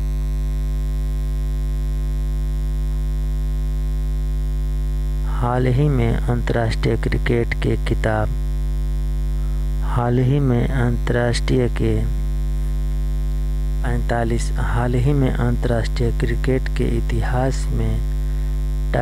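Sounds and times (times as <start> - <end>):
electrical mains hum: 0.0 - 19.0
person speaking: 5.2 - 8.4, 9.8 - 12.2, 13.8 - 18.2.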